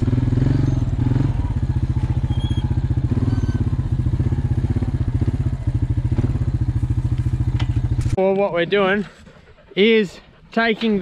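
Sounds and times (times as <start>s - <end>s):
quad bike engine running: 0.0s - 8.2s.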